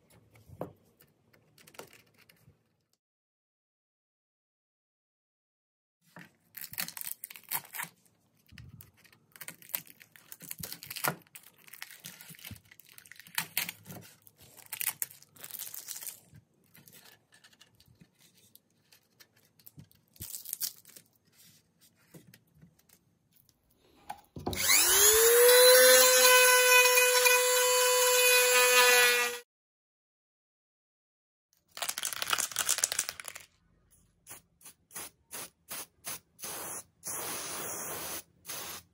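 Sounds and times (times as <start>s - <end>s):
small power tool whine: 24.4s - 29.4s.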